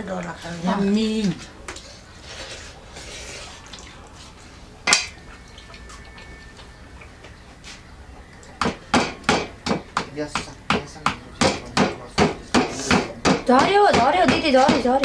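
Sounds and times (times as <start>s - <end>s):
bone knocking on metal plate: 8.6s - 15.0s.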